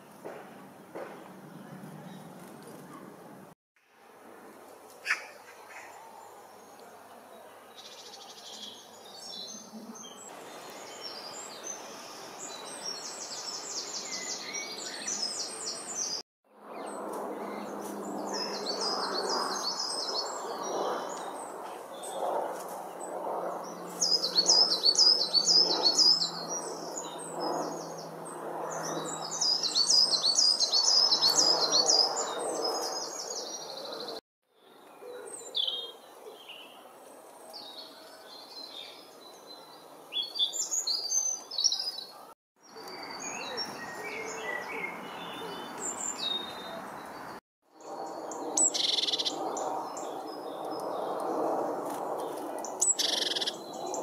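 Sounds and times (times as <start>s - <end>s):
birds chirping: 5.0s - 16.2s, 34.8s - 51.6s, 52.2s - 54.0s.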